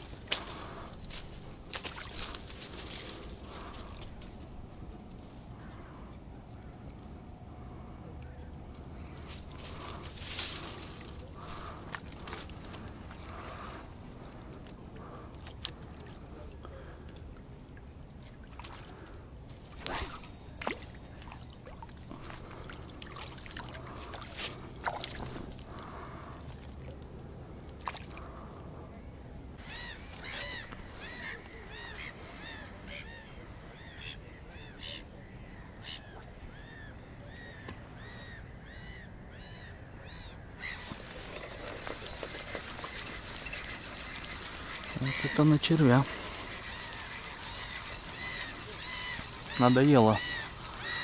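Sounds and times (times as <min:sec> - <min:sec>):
bird calling: 0:28.1 - 0:51.0.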